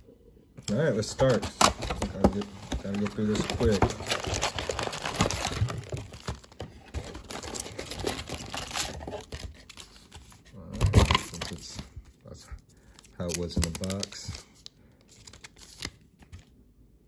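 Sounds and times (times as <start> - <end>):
foil packs rustling and crinkling: 0.7 - 11.8, 12.9 - 14.5.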